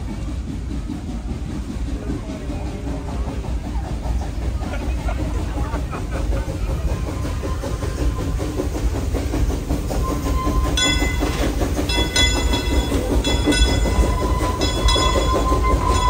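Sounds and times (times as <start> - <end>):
train wheels clattering on track: 0.0 - 16.0
high-pitched metallic squeals: 10.0 - 16.0.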